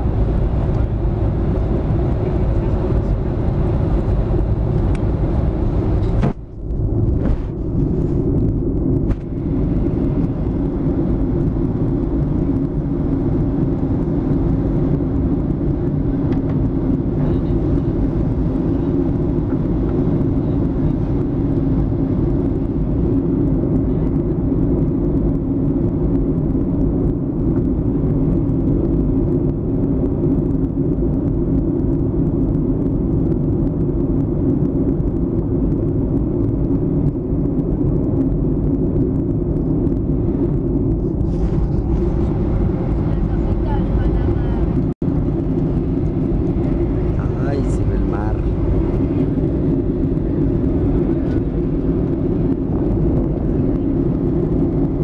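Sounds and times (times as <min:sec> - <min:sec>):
jet engines droning: 0:00.0 - 0:55.0
air rushing past fuselage: 0:26.7 - 0:55.0.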